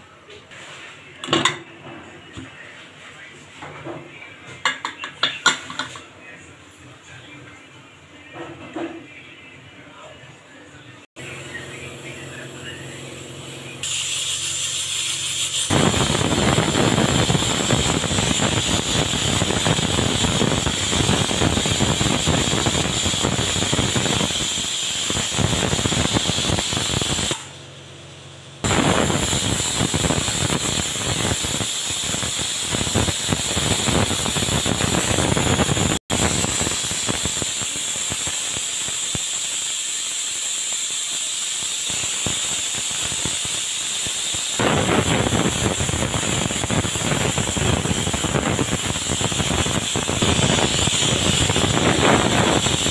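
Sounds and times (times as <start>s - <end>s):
pressure cooker whistling: 11.3s - 27.7s, 28.6s - 52.9s.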